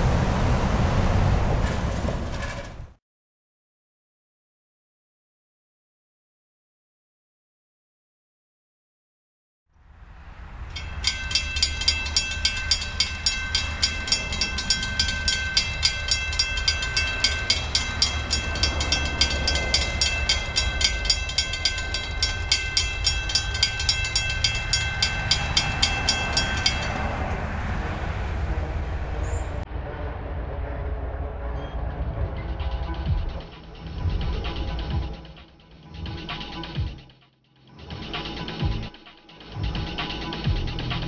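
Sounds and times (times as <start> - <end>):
low rumble: 9.8 - 37.0
railroad crossing bell ringing: 10.6 - 28.1.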